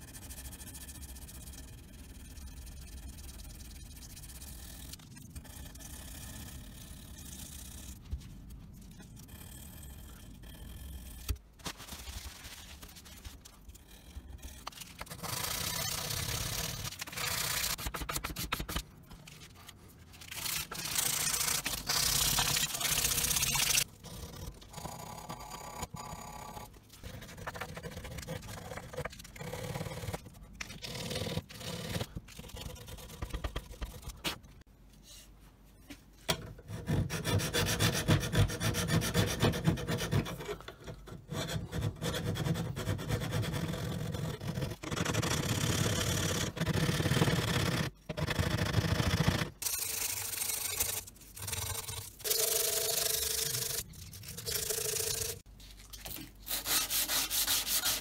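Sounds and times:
sandpaper scraping metal: 12.0s - 23.9s, 56.4s - 58.0s.

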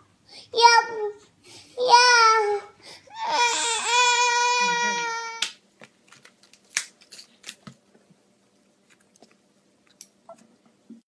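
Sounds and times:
toddler whining cry: 1.8s - 5.5s
toddler chewing and lip smacks: 8.5s - 10.8s.

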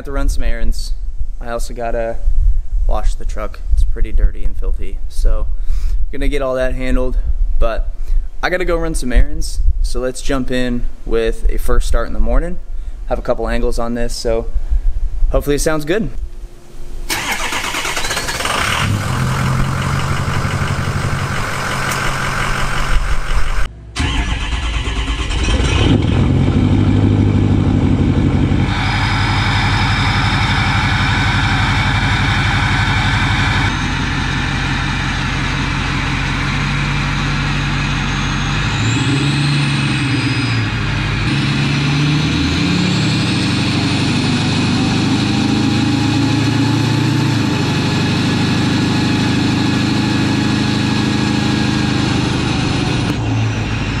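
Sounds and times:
truck engine starting and idling: 17.0s - 54.0s.

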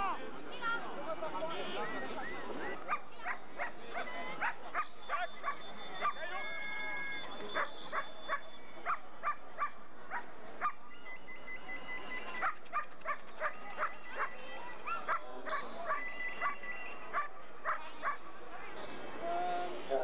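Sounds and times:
dog barking: 7.6s - 10.8s, 14.9s - 18.2s.

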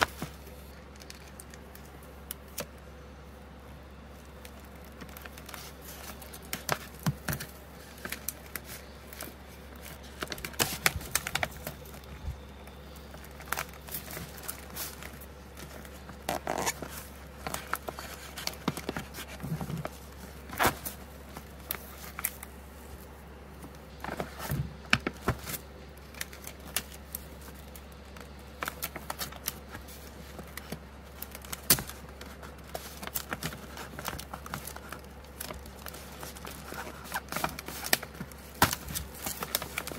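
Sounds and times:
steady low hum: 0.0s - 39.9s
paper envelope crinkling: 3.9s - 39.9s.

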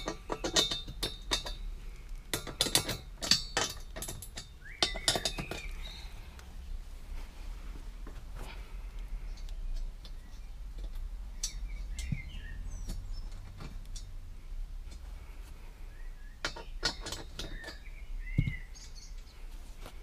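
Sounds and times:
hand tool clicking on metal parts: 0.0s - 6.5s, 9.4s - 14.2s, 16.4s - 19.3s
steady low hum: 0.0s - 20.0s.

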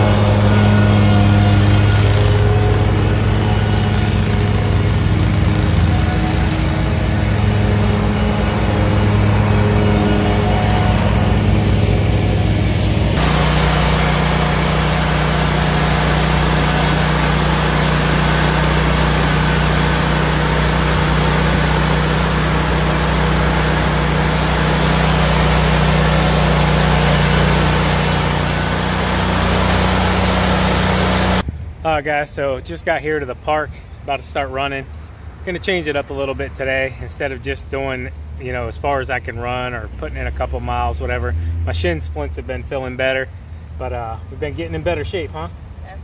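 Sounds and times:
engine running: 0.0s - 31.5s.

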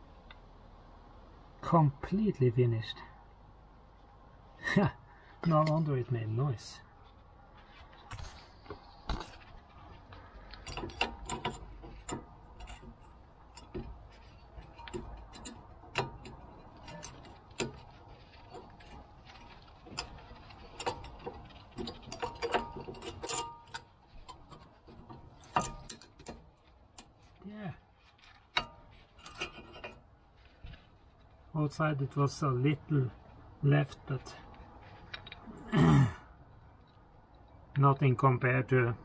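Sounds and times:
metal brake parts clicking: 8.1s - 27.4s, 28.0s - 30.9s, 33.9s - 35.5s.

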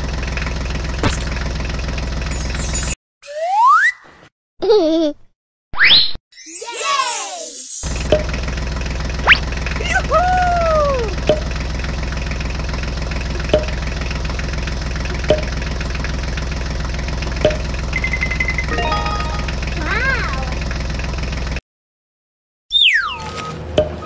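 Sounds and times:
tractor engine idling: 0.0s - 2.8s, 7.8s - 21.6s
cartoon whistle: 2.5s - 4.2s, 5.8s - 7.8s.

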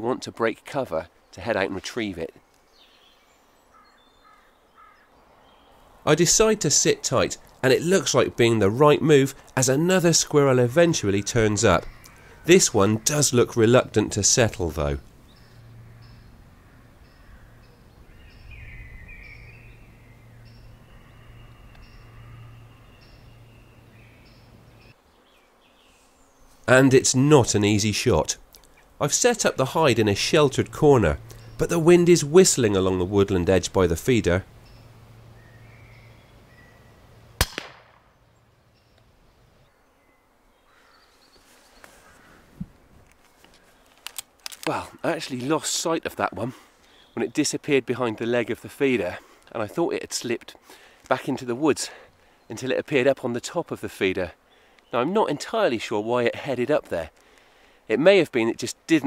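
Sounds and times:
small bird chirping: 2.4s - 5.9s, 11.7s - 13.2s, 15.1s - 26.7s, 30.2s - 32.7s, 34.4s - 37.4s
bird warbling: 2.8s - 5.9s, 11.3s - 26.8s
air rifle shot crack: 37.4s - 38.2s
fainter echo crack: 37.4s - 38.2s.

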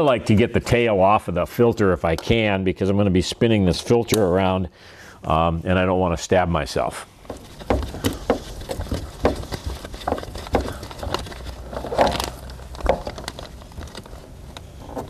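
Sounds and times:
glove rubbing on metal canister: 7.2s - 12.8s
small clicks and knocks: 7.2s - 15.0s.

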